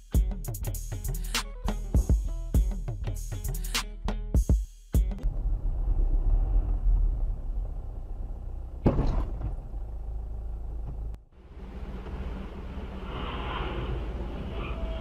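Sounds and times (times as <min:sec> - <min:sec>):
music with drum hits: 0:00.0 - 0:05.2
car engine and road rumble: 0:05.2 - 0:15.0
short thump: 0:08.8 - 0:09.6.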